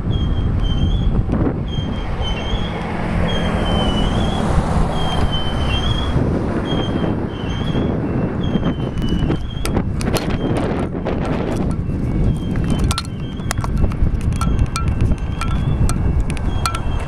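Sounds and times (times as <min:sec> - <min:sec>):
rumble of wheels on track: 0:00.0 - 0:17.0
train wheels squealing on rail: 0:00.0 - 0:17.0.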